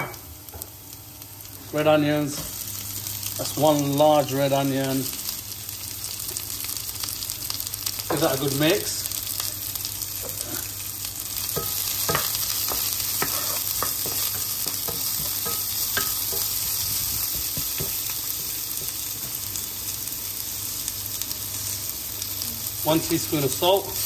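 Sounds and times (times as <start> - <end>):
onion sizzling in oil: 0.0 - 24.0
spatula scraping a pan: 11.5 - 17.0.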